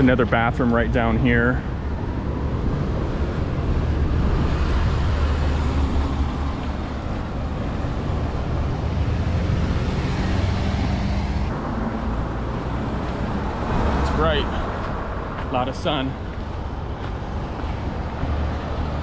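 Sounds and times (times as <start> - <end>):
road traffic passing: 0.0 - 19.0.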